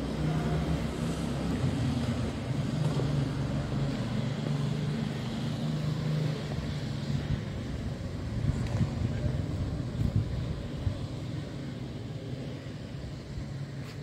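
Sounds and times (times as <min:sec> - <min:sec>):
street noise: 0:00.0 - 0:14.0
vehicle engine humming: 0:00.0 - 0:14.0.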